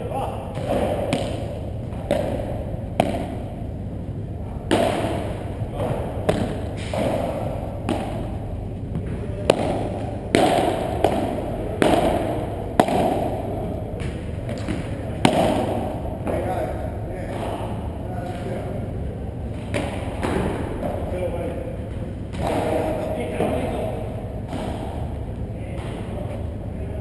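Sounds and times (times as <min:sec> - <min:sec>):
padel ball struck with paddles: 0:00.5 - 0:03.7, 0:04.6 - 0:16.6, 0:19.6 - 0:21.2, 0:21.9 - 0:26.1.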